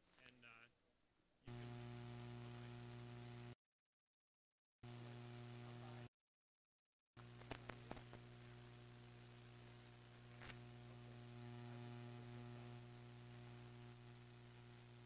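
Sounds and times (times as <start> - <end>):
faint mains hum: 0.0 - 0.8, 1.5 - 3.6, 4.8 - 6.1, 7.2 - 15.0.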